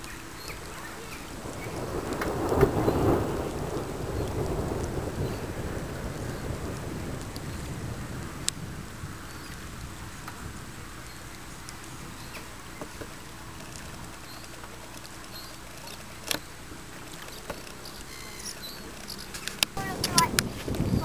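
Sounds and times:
raindrops ticking: 0.0s - 21.0s
steady rain: 0.0s - 21.0s
wind: 0.0s - 21.0s.

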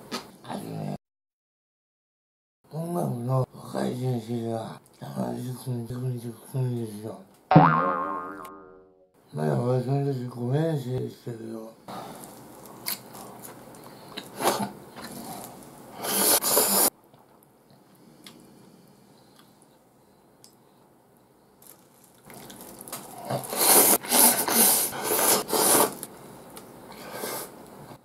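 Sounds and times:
person slurping noodles: 14.4s - 16.9s, 23.1s - 26.0s.

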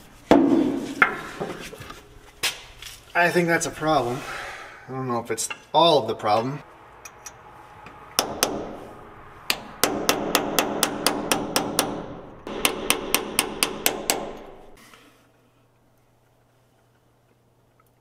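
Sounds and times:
hammer striking metal: 8.1s - 14.8s.

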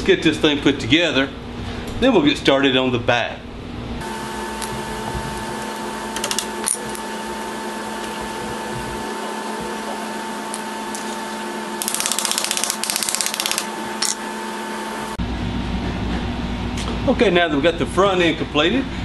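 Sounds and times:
steady background hum: 0.0s - 19.0s
rapid clicking: 11.8s - 14.2s.

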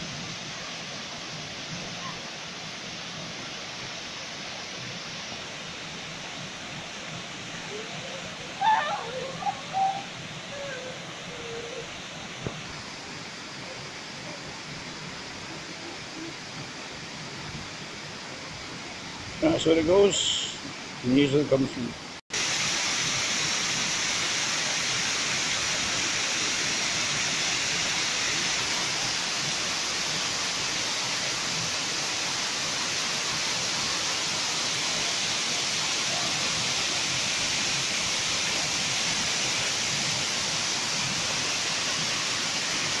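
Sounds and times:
waterfall splashing onto rocks: 0.0s - 18.8s, 22.3s - 43.0s.

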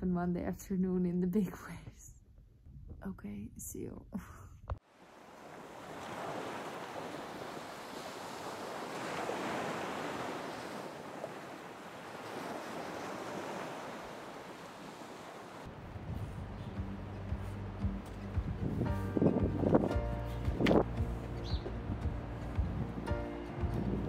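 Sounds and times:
waves breaking: 4.8s - 19.8s.

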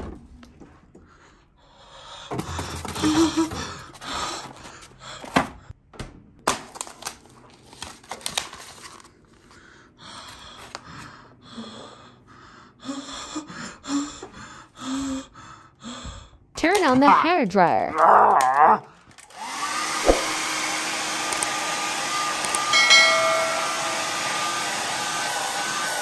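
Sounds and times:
person panting and gasping: 1.0s - 5.7s, 9.5s - 16.4s.

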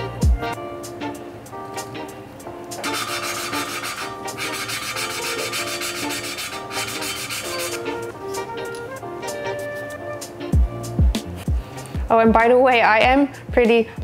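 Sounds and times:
valve lapping gritty rasping: 2.8s - 8.1s.

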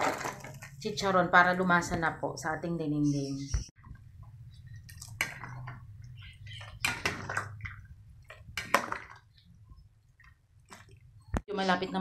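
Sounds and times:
wet sloshing of soup: 3.8s - 11.3s.

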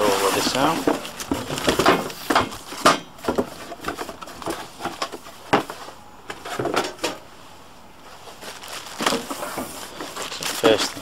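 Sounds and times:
cardboard packaging scraping and rustling: 0.0s - 7.4s, 8.0s - 11.0s.

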